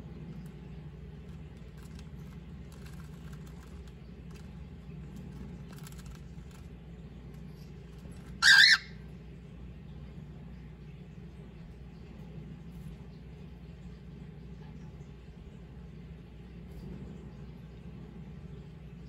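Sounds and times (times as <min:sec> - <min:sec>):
cockatiel squawk: 0:08.2 - 0:09.0.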